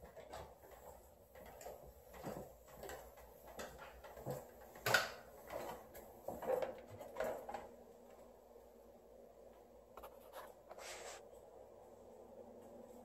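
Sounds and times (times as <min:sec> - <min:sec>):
footsteps on stairs and tiled floor: 0:00.0 - 0:08.8.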